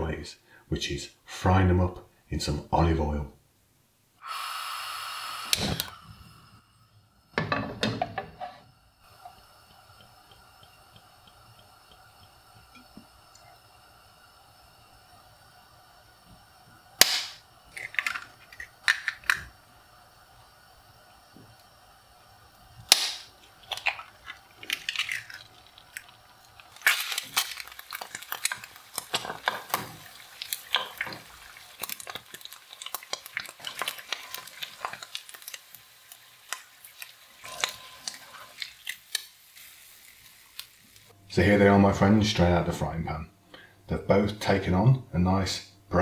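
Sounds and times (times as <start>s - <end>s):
eggs sizzling in oil: 4.2s - 44.6s
eggs cracking: 9.0s - 13.8s, 17.0s - 19.6s, 22.8s - 41.1s.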